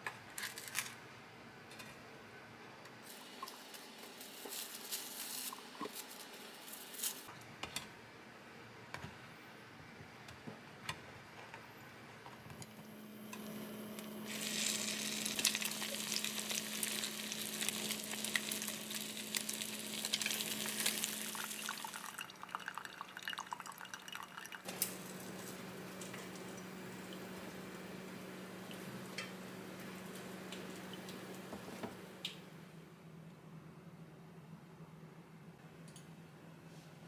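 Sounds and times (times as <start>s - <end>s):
bread sizzling in butter: 14.3s - 22.3s.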